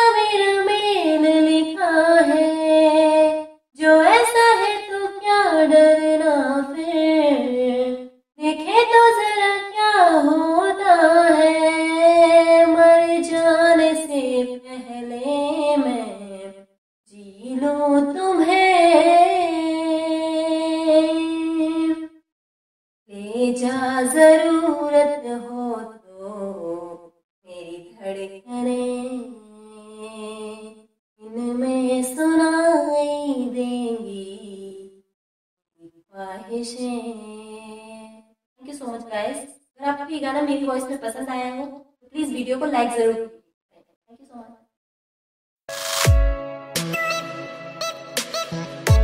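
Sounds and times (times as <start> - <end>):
woman singing unaccompanied: 0.0 - 22.0, 23.1 - 34.9, 36.1 - 39.4.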